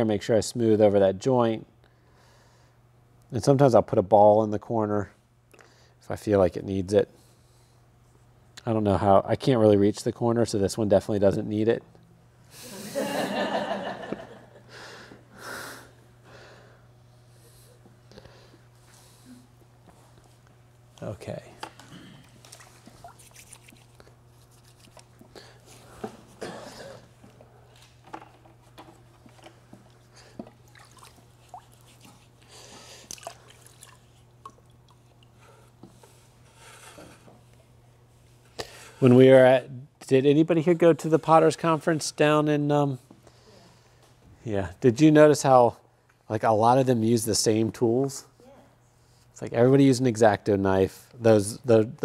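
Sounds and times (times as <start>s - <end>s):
low steady hum: 0.0s - 52.0s
person breathing: 1.9s - 2.8s, 14.7s - 19.5s, 32.4s - 33.4s, 38.5s - 39.0s, 43.2s - 44.1s
small wet sounds: 22.2s - 25.4s, 29.7s - 35.8s
fingers rubbing wet clay: 22.9s - 25.2s.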